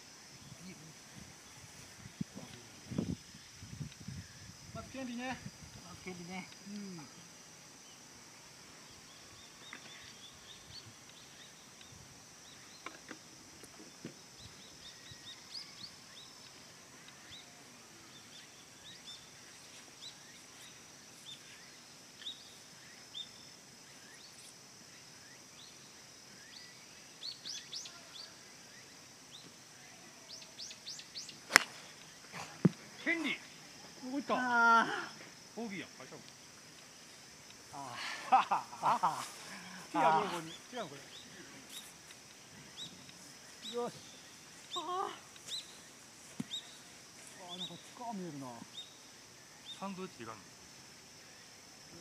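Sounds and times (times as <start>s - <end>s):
high insect drone: 0.0s - 52.0s
golf club striking ball: 31.5s - 31.8s.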